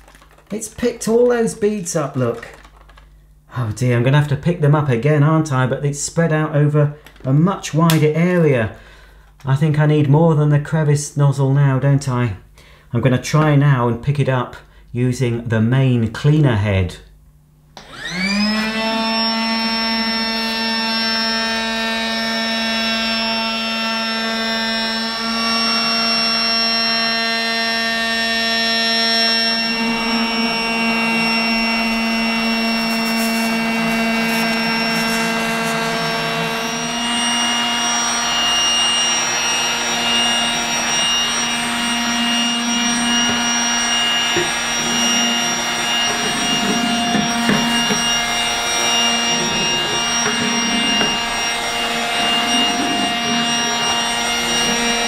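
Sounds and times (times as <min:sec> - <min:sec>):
toy vacuum motor whine: 0:17.8 - 0:55.0.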